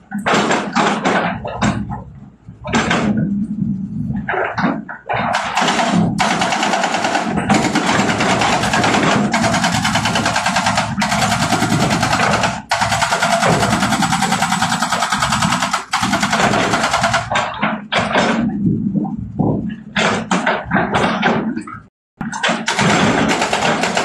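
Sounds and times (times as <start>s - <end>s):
excavator engine running: 0.0s - 24.0s
hydraulic rock breaker hammering: 4.6s - 18.6s, 22.2s - 24.0s.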